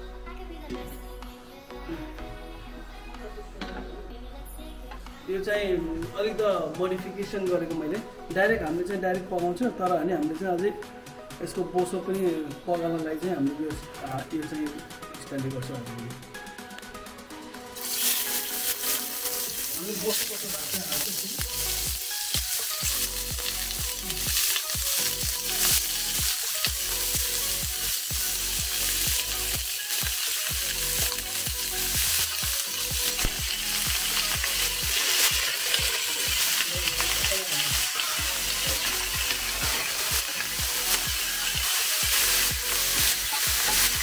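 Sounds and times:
meat sizzling in hot oil: 17.8s - 44.0s.

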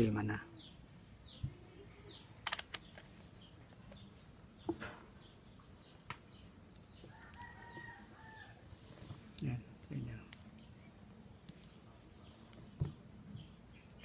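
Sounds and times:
small birds chirping: 0.0s - 14.0s
distant rooster crowing: 7.0s - 8.8s.

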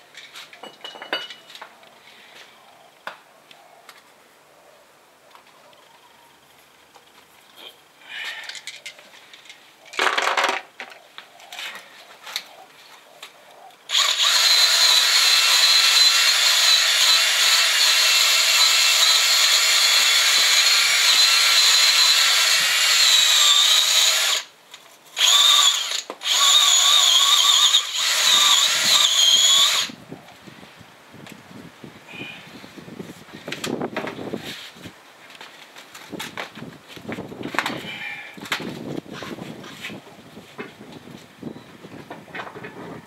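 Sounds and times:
drill wire brush scraping metal: 25.2s - 30.0s.

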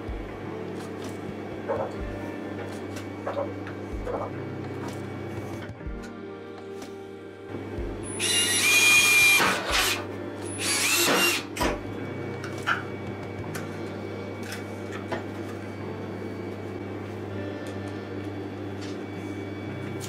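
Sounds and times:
handheld power tool whining: 8.0s - 11.8s.

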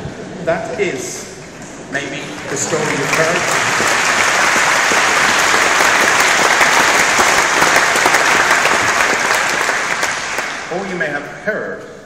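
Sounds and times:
large audience applauding: 2.0s - 10.8s.

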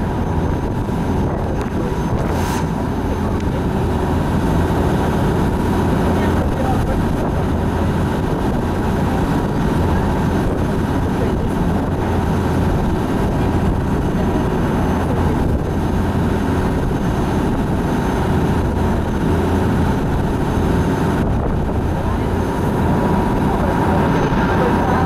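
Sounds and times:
rushing noise: 0.0s - 5.9s
boat engine droning: 0.0s - 25.0s.

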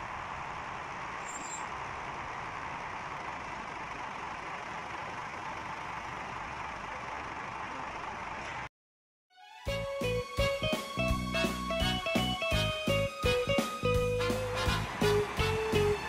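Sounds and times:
diesel railcar engine idling: 0.0s - 8.7s, 9.8s - 16.0s.

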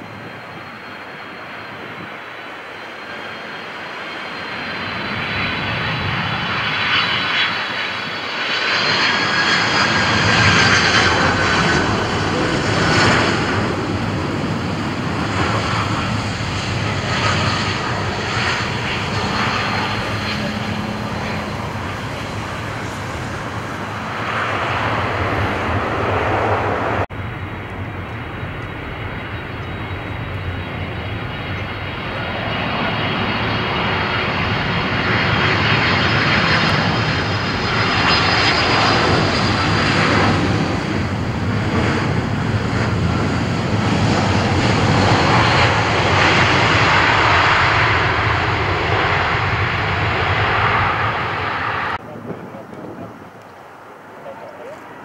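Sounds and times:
airliner jet engines landing: 0.0s - 55.0s.

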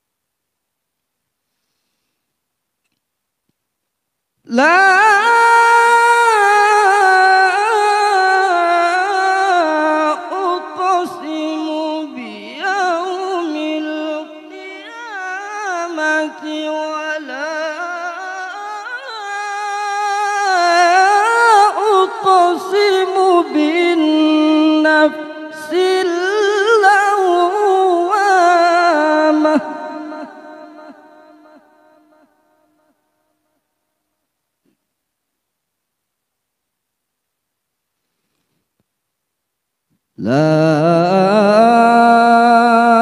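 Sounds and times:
man chanting into microphone: 4.5s - 32.2s, 40.2s - 43.0s.

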